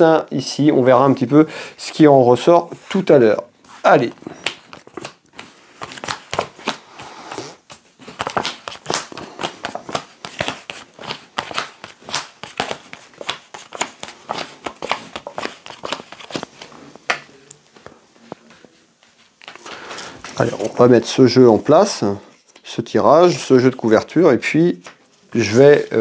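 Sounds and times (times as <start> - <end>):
cards being shuffled: 2.7 - 20.8, 24.8 - 26.0.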